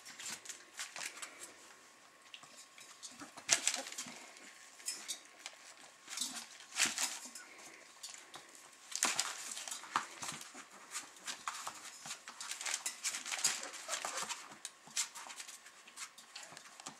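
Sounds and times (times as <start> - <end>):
paws scratching on newspaper: 0.0 - 1.7, 3.2 - 4.7, 5.3 - 16.9
puppy whimpers: 13.4 - 14.5.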